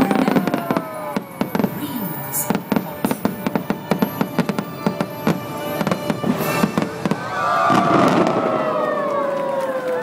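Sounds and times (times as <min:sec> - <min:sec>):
firework bangs and crackles: 0:00.0 - 0:10.0
music playing: 0:02.1 - 0:07.4.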